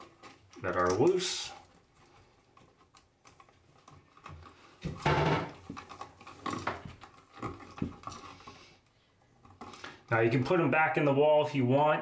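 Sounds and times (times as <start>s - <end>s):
wire nuts twisted onto wires: 0.0s - 10.2s
clicks and rustles of wire: 0.0s - 10.6s.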